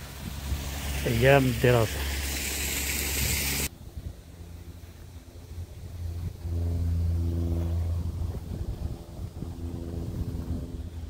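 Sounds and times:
loud rushing hiss: 0.0s - 3.7s
engine humming: 0.0s - 11.0s
low uneven rumble: 0.0s - 11.0s.

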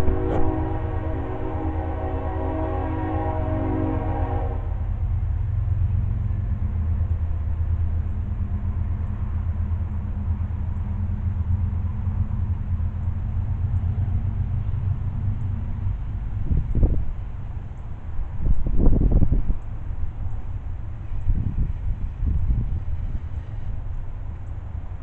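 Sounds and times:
horn sounding a long chord: 0.0s - 5.0s
low rumble: 0.0s - 25.0s.

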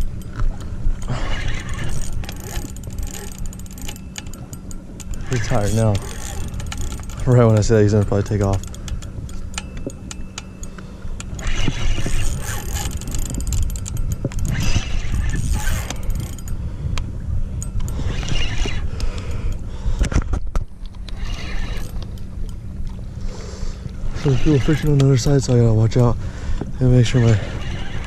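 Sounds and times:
fishing reel gears whirring: 0.0s - 19.7s, 21.0s - 22.8s, 23.5s - 28.0s
wind on microphone: 11.1s - 28.0s.

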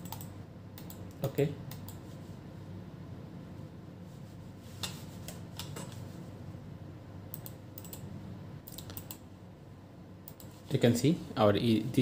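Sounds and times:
computer mouse buttons clicking: 0.0s - 2.0s, 7.3s - 8.1s, 8.7s - 9.2s
low steady hum: 0.0s - 12.0s.

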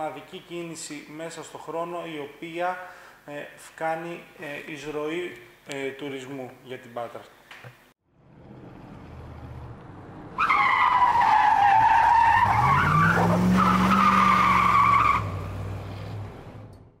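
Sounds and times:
car engine: 8.1s - 17.0s
car tyres screeching: 8.4s - 16.7s.

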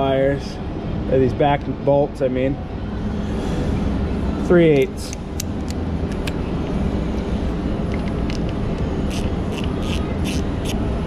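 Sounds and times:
ratchet wrench clicking: 7.9s - 10.8s.

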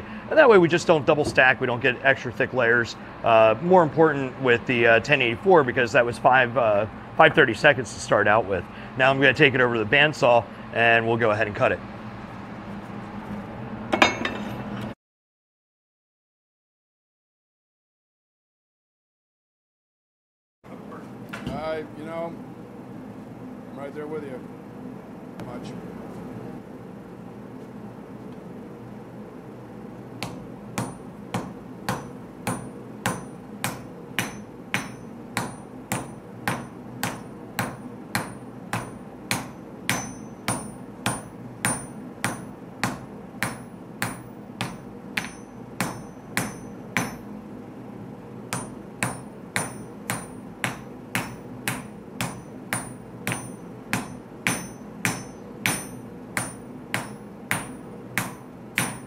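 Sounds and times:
hammer striking metal on anvil: 13.9s - 14.6s, 30.2s - 47.3s, 48.5s - 59.0s.

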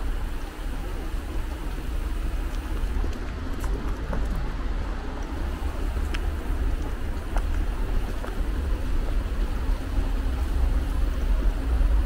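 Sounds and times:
city street rumble: 0.0s - 12.0s
faint clicks: 5.2s - 8.5s.

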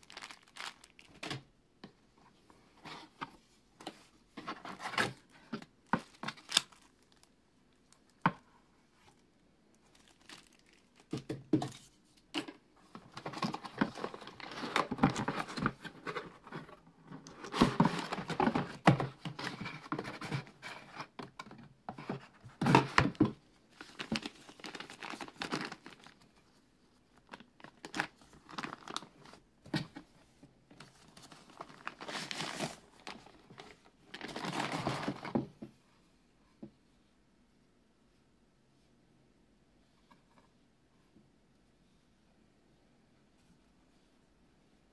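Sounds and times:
cardboard and wrapping rustling: 0.0s - 1.5s, 2.6s - 9.2s, 9.8s - 12.0s, 12.8s - 35.7s.

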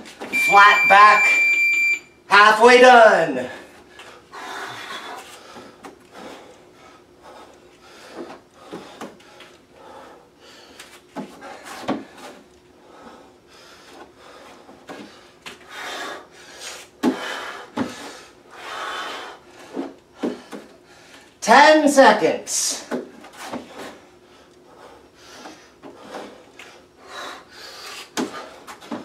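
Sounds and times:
man breathing hard: 3.6s - 21.4s, 23.6s - 28.8s.

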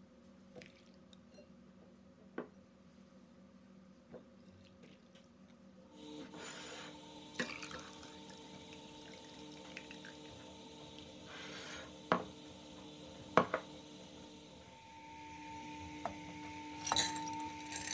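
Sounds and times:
water trickling into a bowl: 7.4s - 10.4s.

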